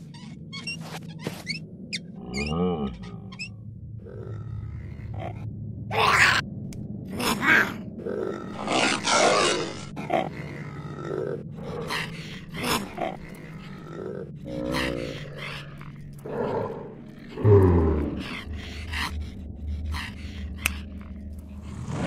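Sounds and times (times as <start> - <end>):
monster growls and snarls: 7.0 - 22.0.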